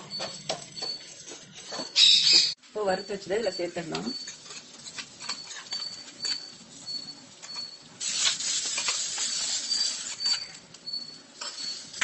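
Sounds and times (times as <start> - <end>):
hot ghee sizzling: 3.2 - 12.0.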